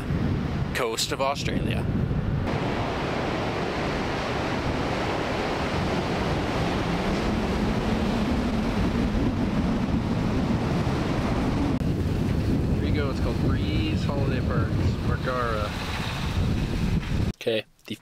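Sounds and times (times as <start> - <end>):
wind buffeting microphone: 0.0 - 17.4
small waves washing on sand: 2.5 - 9.0.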